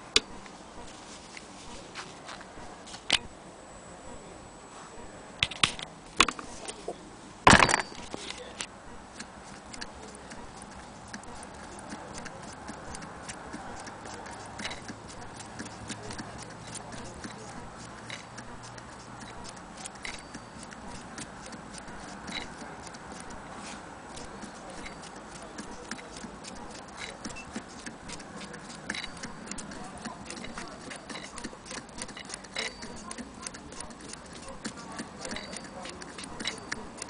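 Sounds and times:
sewing machine ticking: 9.1s - 23.5s, 24.1s - 37.0s
sewing machine metal clack: 9.2s - 23.4s, 24.1s - 37.0s.

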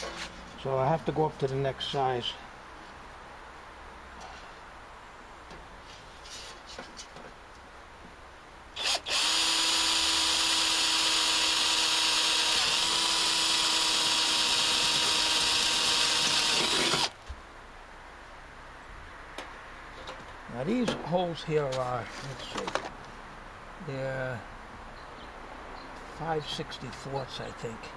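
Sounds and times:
drill whining through sheet metal: 8.8s - 17.1s.

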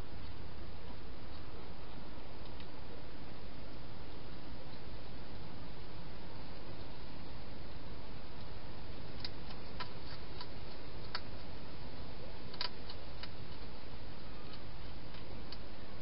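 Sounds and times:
steady hiss: 0.0s - 16.0s
hedgehog eating clicks and crunches: 8.4s - 11.5s, 12.4s - 15.7s.

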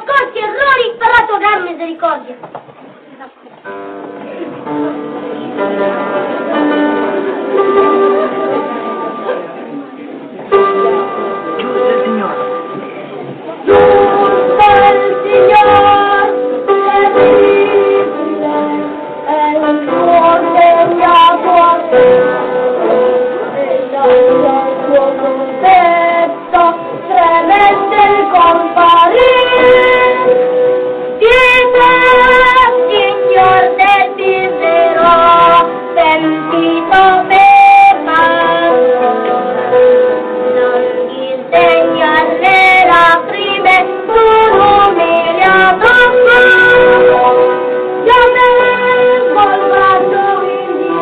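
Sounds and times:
children's chorus singing: 13.6s - 39.5s, 40.6s - 51.0s.

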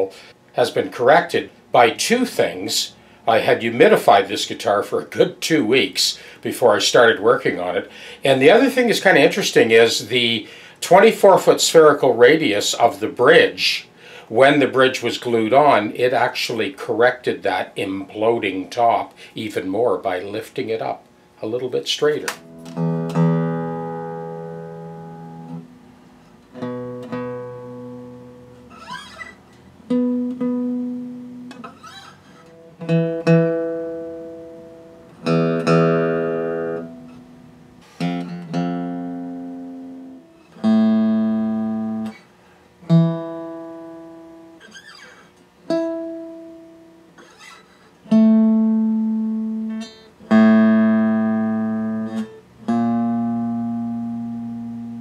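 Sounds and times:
acoustic guitar single notes: 22.3s - 25.8s, 26.5s - 42.2s, 42.8s - 55.0s.

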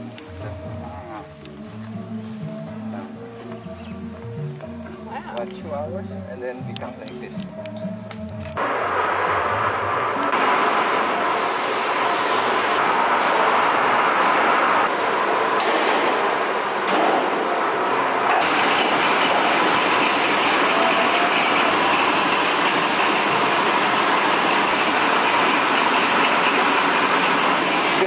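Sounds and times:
rubber sheeting mill rollers running: 8.6s - 28.0s.

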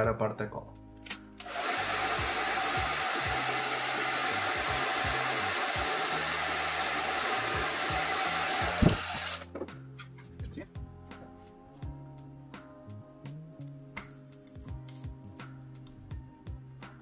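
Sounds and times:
hair dryer blowing: 1.4s - 9.4s.

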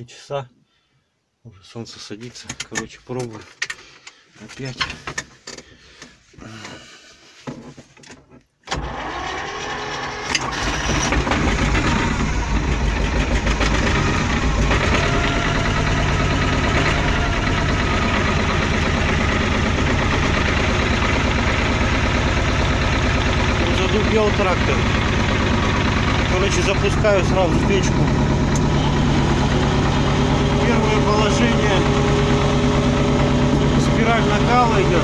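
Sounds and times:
tractor diesel engine starting: 8.6s - 35.0s.

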